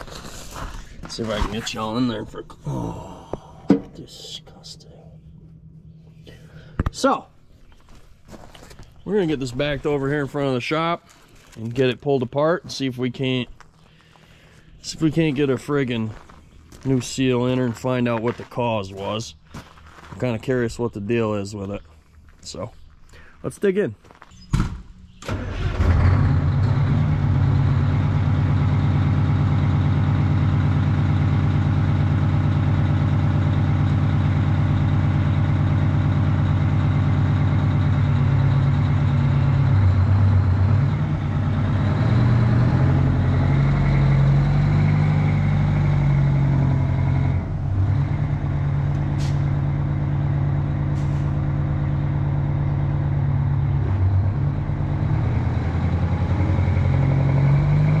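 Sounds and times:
truck diesel engine revving: 25.2 - 58.0
short sharp air hisses: 51.0 - 51.3.

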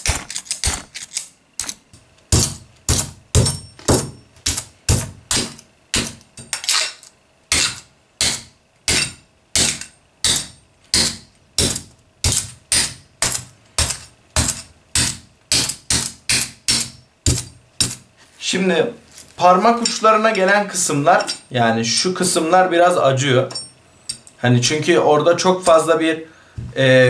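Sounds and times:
axe clanking on metal armor: 0.0 - 16.1.

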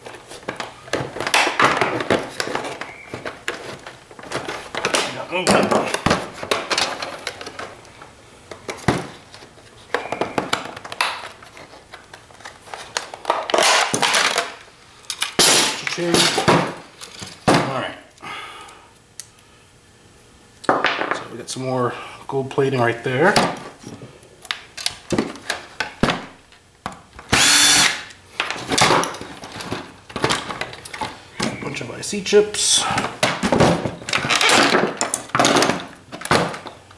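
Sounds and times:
cordless drill whirring: 27.3 - 28.1.

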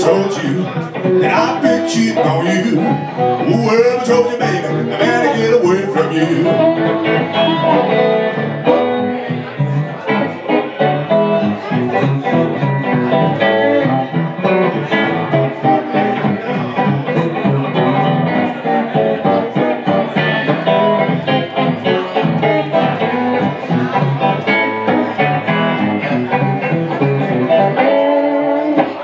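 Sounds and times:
electric guitar blues playing: 0.0 - 29.0.

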